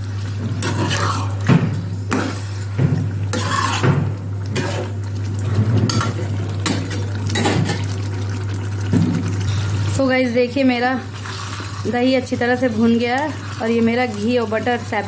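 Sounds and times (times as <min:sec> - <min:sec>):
metal spatula scraping a pan: 0:00.6 - 0:01.4, 0:03.3 - 0:03.9.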